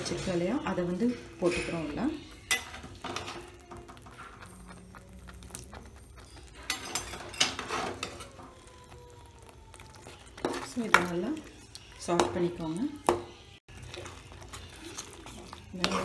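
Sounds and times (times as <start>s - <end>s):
metal spoon clinking on pan: 1.3s - 4.9s, 5.5s - 8.4s.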